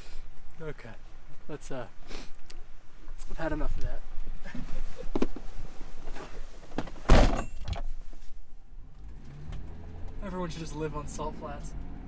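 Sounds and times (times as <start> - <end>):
car door slamming shut: 6.8 - 7.8
low engine hum: 8.5 - 12.0.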